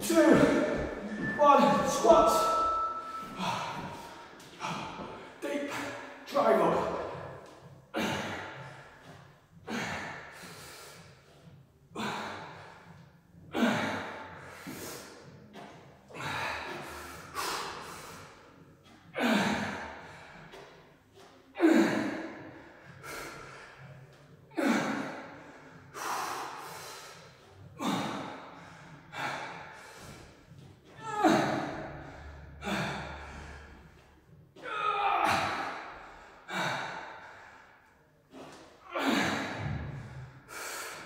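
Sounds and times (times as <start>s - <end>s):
man breathing hard: 7.1s - 20.9s, 21.6s - 34.4s, 35.2s - 41.0s.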